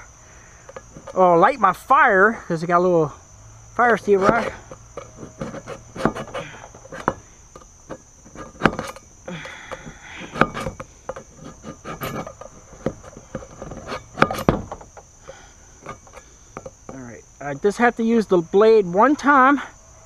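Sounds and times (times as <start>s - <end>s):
crickets trilling: 0.0s - 20.0s
knife scraping a tin can: 0.6s - 1.3s, 3.8s - 17.0s.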